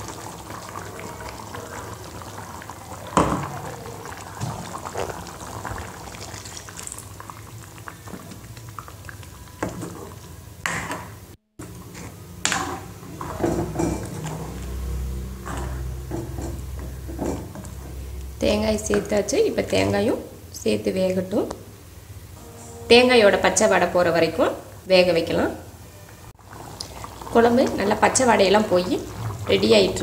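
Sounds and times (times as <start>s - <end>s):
curry bubbling: 0.0s - 10.6s, 26.4s - 30.0s.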